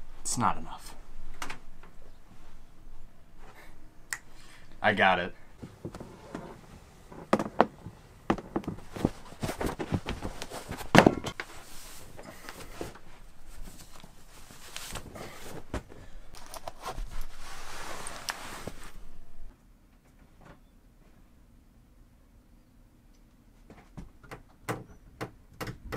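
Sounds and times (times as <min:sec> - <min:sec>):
clothing rustling: 0:05.4 - 0:19.5
footsteps on carpeted stairs: 0:05.6 - 0:17.4.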